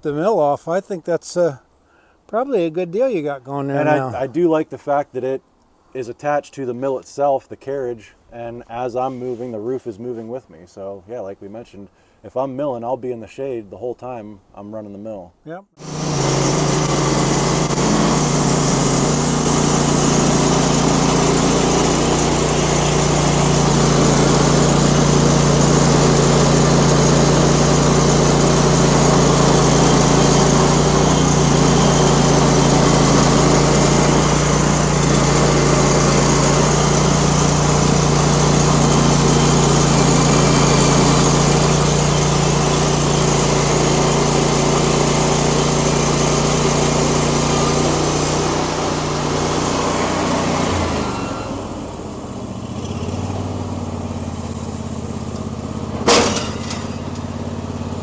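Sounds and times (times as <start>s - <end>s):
band saw cutting log: 15.8s - 52.1s, 55.3s - 57.5s
gas engine running: 15.8s - 58.0s.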